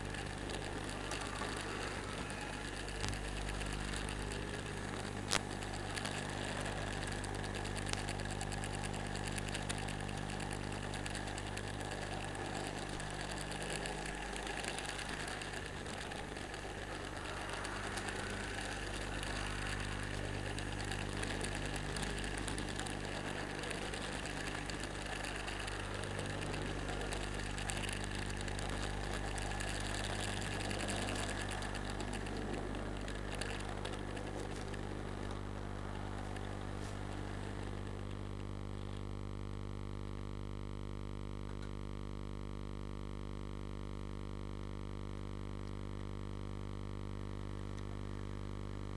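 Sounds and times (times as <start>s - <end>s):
model train motor whirring: 0.0s - 39.0s
clicks: 0.0s - 39.2s.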